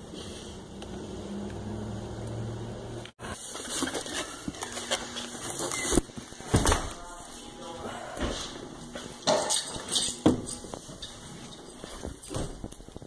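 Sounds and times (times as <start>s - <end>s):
footsteps: 3.2s - 13.0s.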